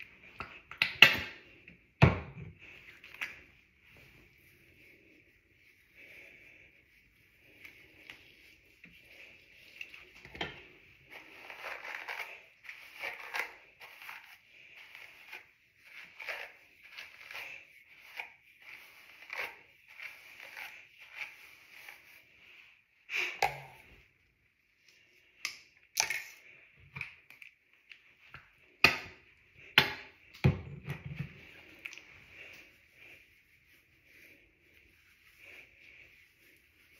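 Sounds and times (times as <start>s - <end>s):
wet hair rustling strokes: 2.6s - 22.9s, 31.3s - 36.9s.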